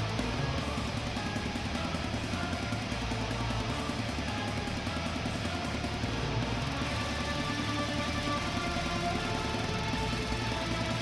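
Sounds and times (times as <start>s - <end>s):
electric guitar and drums music: 0.0s - 11.0s.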